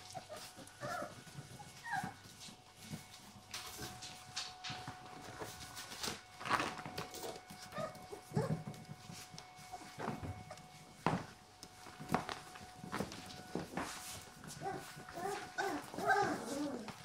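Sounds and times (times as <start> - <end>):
puppies yipping and whimpering: 0.0 - 2.3, 7.6 - 8.6, 14.6 - 17.0
paws scuffling on tiled floor: 0.0 - 17.0.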